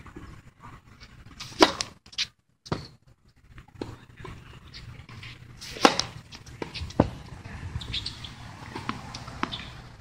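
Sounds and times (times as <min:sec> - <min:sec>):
racket striking tennis ball: 0:01.4 - 0:02.0, 0:05.1 - 0:09.9.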